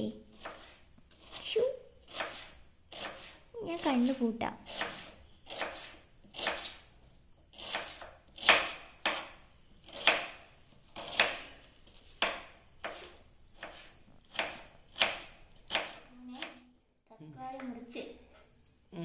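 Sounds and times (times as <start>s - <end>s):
knife chopping on wooden board: 0.3s - 1.4s, 2.1s - 3.4s, 4.7s - 6.8s, 7.5s - 16.5s.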